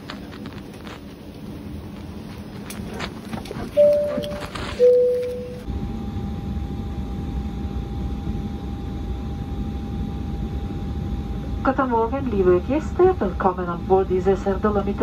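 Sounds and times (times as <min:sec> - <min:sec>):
aircraft cabin rumble and whine: 0:00.0 - 0:15.0
two-tone cabin chime: 0:03.8 - 0:05.7.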